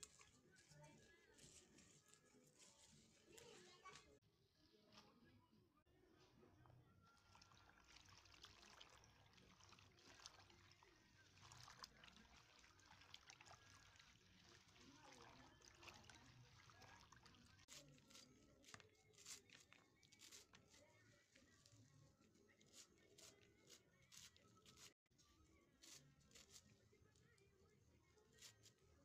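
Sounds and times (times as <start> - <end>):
water splashing in basin: 7.2 - 17.8.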